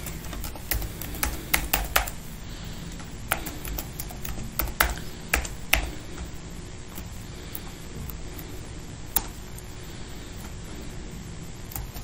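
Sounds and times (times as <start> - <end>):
keyboard key clicks: 0.0 - 2.2.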